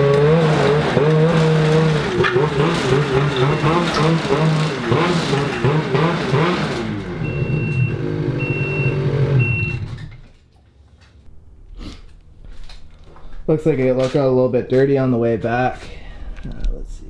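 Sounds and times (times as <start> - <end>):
snowmobile engine running: 0.0 - 9.8.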